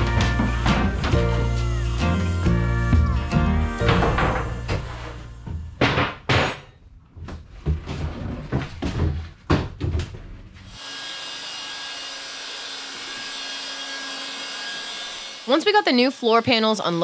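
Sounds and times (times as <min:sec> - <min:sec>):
wooden floor panels knocking: 0:00.0 - 0:01.2, 0:03.8 - 0:10.3
shop vacuum running: 0:00.0 - 0:05.7, 0:10.7 - 0:17.0.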